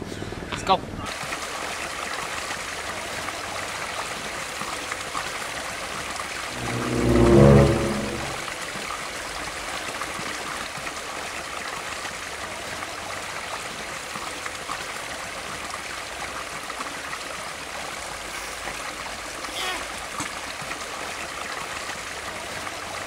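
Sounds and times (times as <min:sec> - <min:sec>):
creek water running: 0:01.1 - 0:05.8, 0:09.6 - 0:23.0
short pitched sound: 0:06.5 - 0:08.4.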